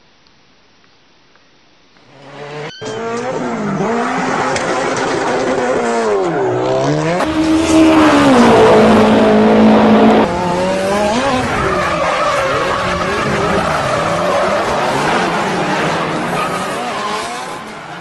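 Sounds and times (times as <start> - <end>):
racing car engine revving: 2.1 - 18.0
tyre squeal: 2.6 - 6.6.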